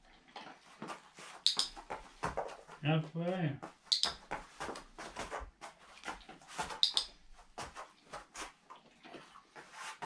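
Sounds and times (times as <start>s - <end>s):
dog claws clicking on floor: 0.4s - 2.7s, 3.7s - 9.7s
sharp double click: 3.9s - 4.2s.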